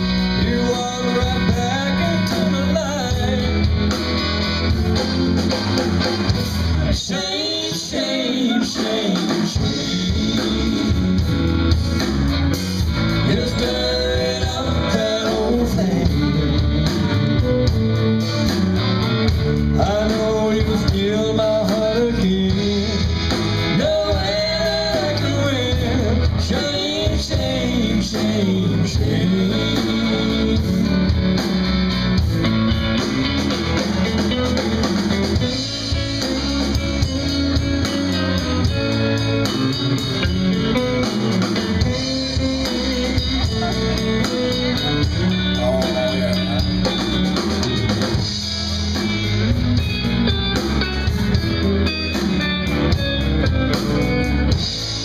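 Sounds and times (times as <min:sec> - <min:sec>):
person singing: 0:00.0 - 0:04.0, 0:06.8 - 0:11.3, 0:13.1 - 0:17.7, 0:19.6 - 0:31.5, 0:33.8 - 0:48.0
bass guitar: 0:00.0 - 0:55.0
drums: 0:00.0 - 0:55.0
electric guitars: 0:00.0 - 0:55.0.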